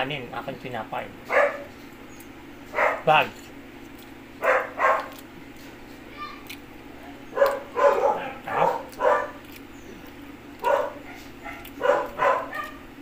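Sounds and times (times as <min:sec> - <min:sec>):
dog barking: 0:01.3 - 0:01.7, 0:02.7 - 0:03.2, 0:04.4 - 0:05.2, 0:07.3 - 0:09.5, 0:10.6 - 0:12.8.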